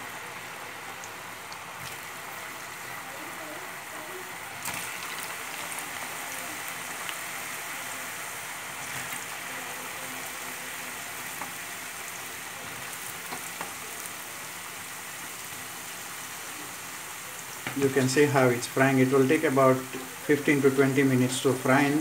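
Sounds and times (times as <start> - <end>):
oil sizzling while deep-frying: 0.0 - 22.0
faint crackles: 0.9 - 7.8.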